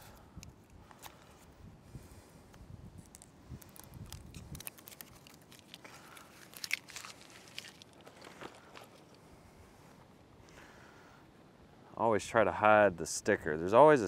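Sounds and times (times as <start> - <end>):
tape liner peeling crackle: 3.0 - 9.0.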